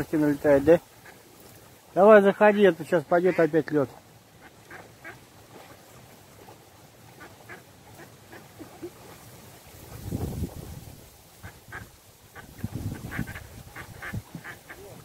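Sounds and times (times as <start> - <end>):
ducks quacking: 4.4 - 5.2, 7.2 - 9.1, 11.4 - 15.0.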